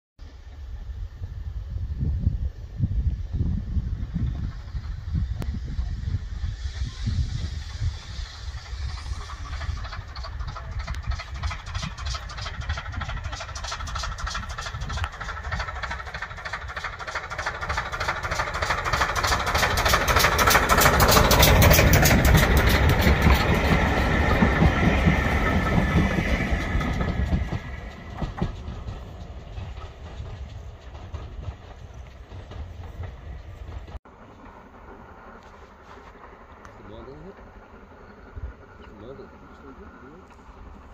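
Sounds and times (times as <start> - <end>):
steam locomotive exhaust beats: 0.4 - 40.9
train wheels clattering on rails: 4.0 - 40.9.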